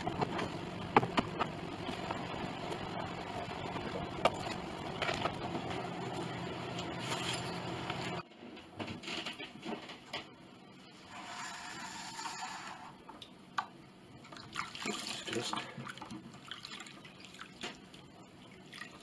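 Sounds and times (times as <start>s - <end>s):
water sloshing in a tub: 14.2s - 19.0s.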